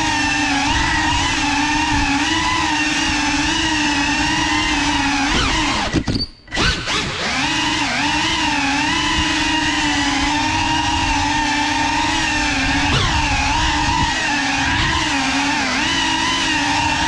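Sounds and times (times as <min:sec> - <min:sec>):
drone propellers whining: 0:00.0 - 0:17.0.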